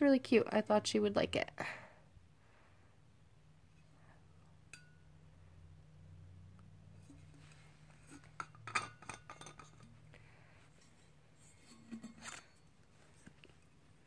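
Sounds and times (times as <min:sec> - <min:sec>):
metal screw cap clicking and scraping: 0:08.0 - 0:10.0, 0:10.8 - 0:12.7
bottle clinks and handling: 0:08.1 - 0:09.9.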